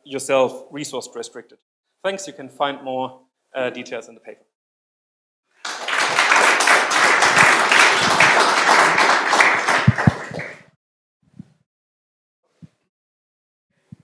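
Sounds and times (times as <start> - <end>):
audience applauding: 5.6 - 10.7.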